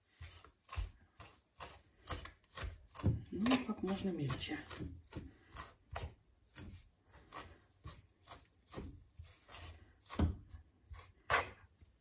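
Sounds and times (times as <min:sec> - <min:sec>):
knife chopping on cutting board: 0:00.2 - 0:11.7.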